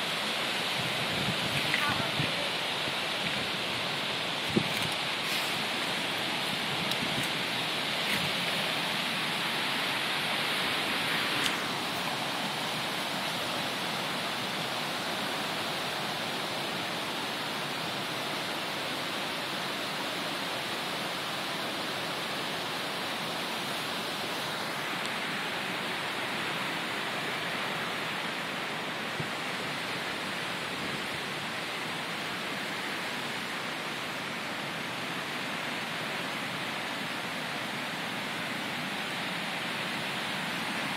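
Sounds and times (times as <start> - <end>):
flooding creek rushing: 0.0 - 40.9.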